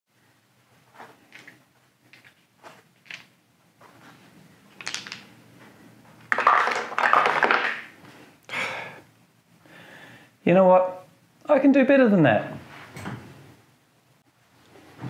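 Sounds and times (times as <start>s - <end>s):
dice rattling through dice tower: 3.0s - 3.3s, 4.8s - 5.3s, 6.3s - 7.9s
game pieces clattering on table: 3.0s - 3.3s, 4.8s - 5.3s, 6.3s - 7.9s.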